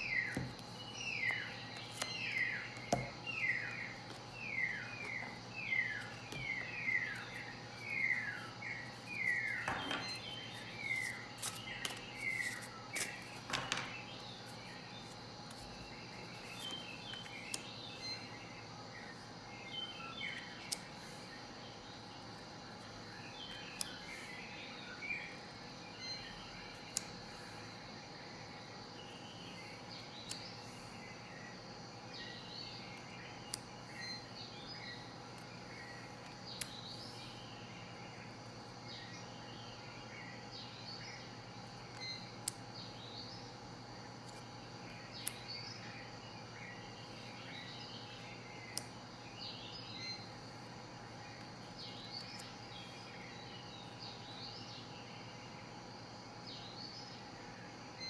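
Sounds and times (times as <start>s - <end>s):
birds chirping and singing: 0.0s - 57.8s
steady low hum: 0.0s - 58.0s.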